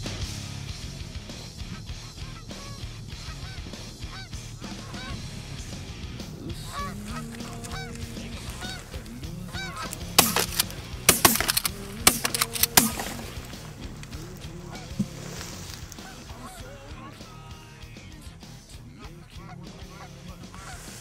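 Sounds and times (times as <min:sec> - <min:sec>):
geese honking: 0:00.0 - 0:21.0
loud sharp cracks: 0:06.9 - 0:16.3.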